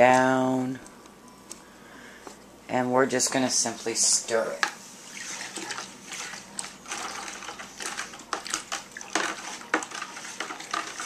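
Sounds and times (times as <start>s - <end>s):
spoon scraping plastic bucket: 5.1s - 11.0s
water sloshing: 5.1s - 11.0s.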